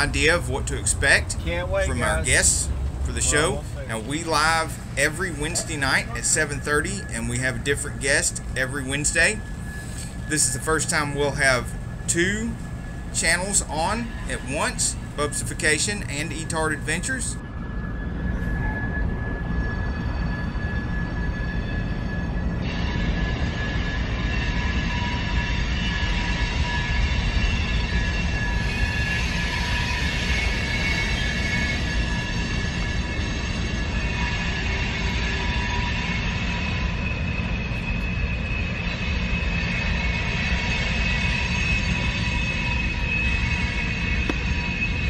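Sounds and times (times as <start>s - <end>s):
snowmobile engine rumbling: 0.0s - 15.5s.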